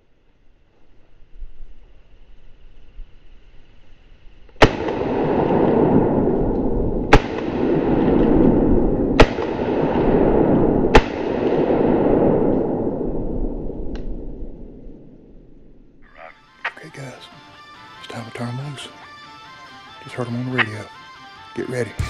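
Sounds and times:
shotgun shots: 4.6 - 14.7
rumbling echo: 4.6 - 17.0.

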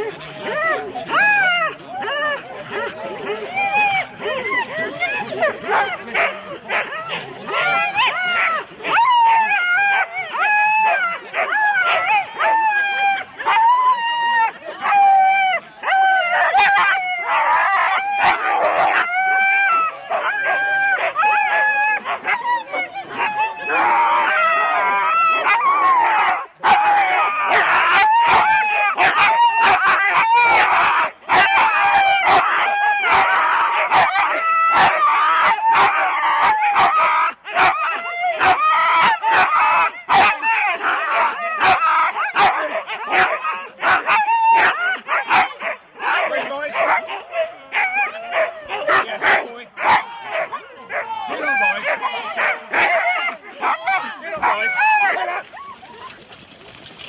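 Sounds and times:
dogs yelping and howling: 0.0 - 56.1
dogs yelping: 39.3 - 56.1.

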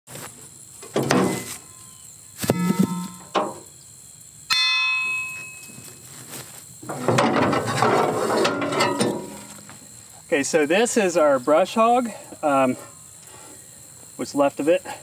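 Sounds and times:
metal clanks: 2.4 - 3.7, 6.8 - 9.8
metal scraping and rattling: 2.4 - 3.7, 6.8 - 9.7.

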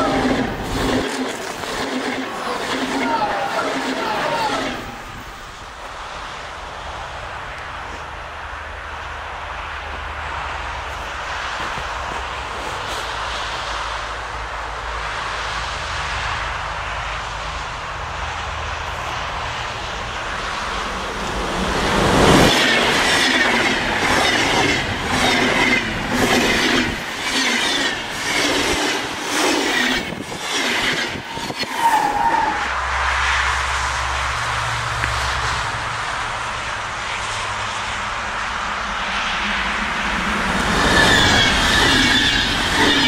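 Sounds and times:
train wheels clattering: 0.0 - 5.3, 21.2 - 32.2
train rumble: 0.0 - 43.0.

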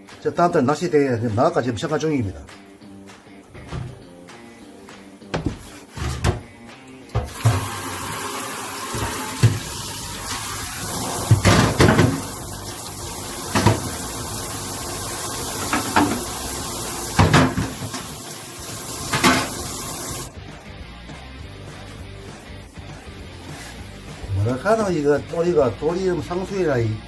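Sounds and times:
tap running into sink: 7.1 - 20.3
dishes knocking: 11.2 - 12.3, 17.2 - 18.0.

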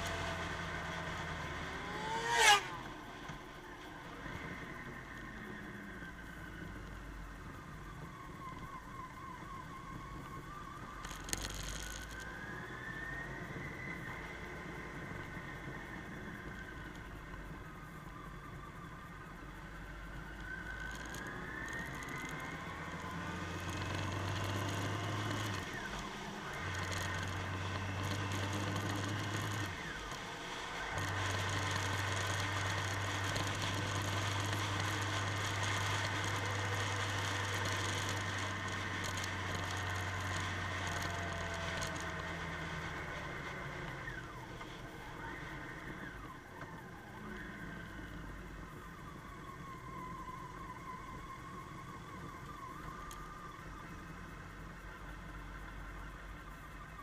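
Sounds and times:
motorcycle engine accelerating: 0.0 - 8.2, 20.2 - 54.9.

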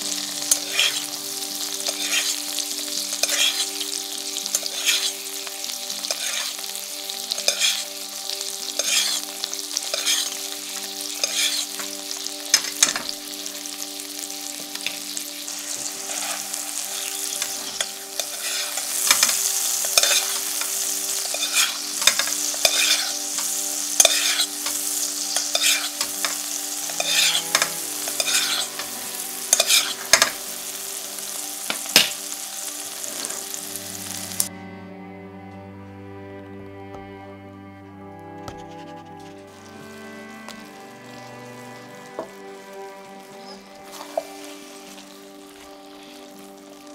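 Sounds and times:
meat sizzling in a frying pan: 0.0 - 34.5, 40.5 - 46.9
metal spoon scraping a pan: 0.4 - 1.1, 1.8 - 2.4, 3.2 - 3.7, 4.4 - 7.8, 8.7 - 13.4, 15.6 - 28.9, 29.5 - 30.4.

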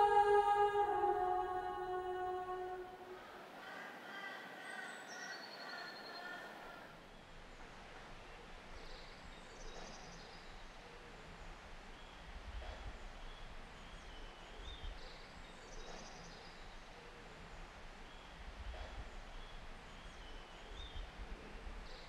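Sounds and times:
faint bird chirps: 3.6 - 7.4.

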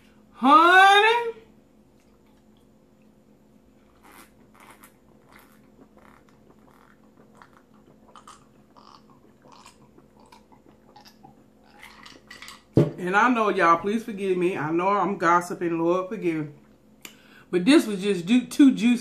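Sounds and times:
person gulping and swallowing: 3.9 - 12.8.

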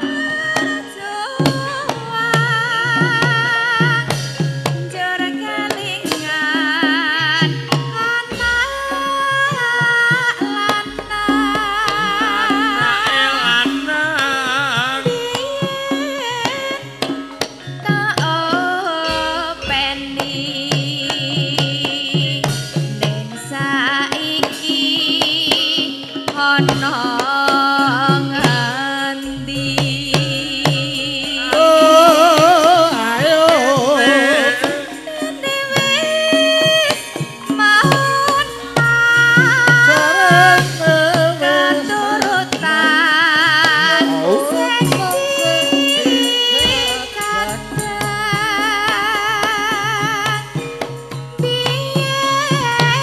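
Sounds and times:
gamelan accompaniment: 0.0 - 53.0
steady drumming: 0.0 - 53.0
woman singing into a microphone: 0.0 - 53.0.

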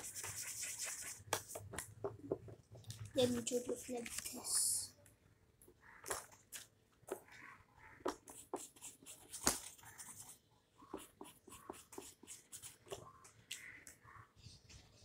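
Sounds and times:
paper and pen handling clicks: 3.0 - 4.6.

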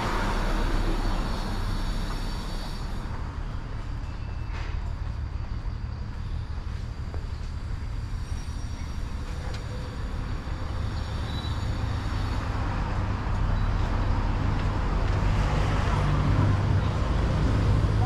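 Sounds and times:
street traffic rumble: 0.0 - 18.0.

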